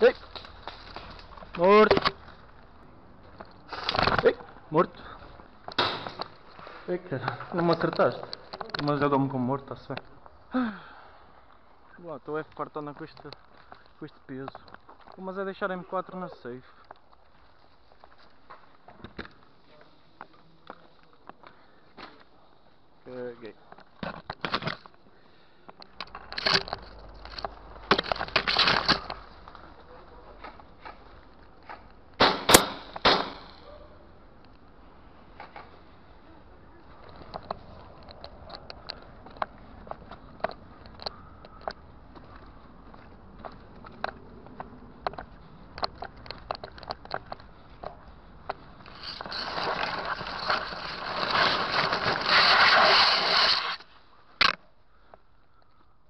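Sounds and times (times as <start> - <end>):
grass brushing microphone: 48.8 - 53.9.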